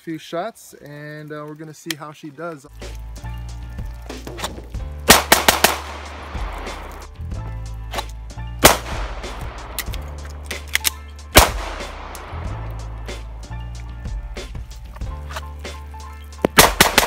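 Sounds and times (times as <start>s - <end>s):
background music: 2.6s - 17.0s
pistol shots: 5.1s - 6.9s, 8.6s - 10.0s, 10.6s - 12.4s, 16.5s - 17.0s.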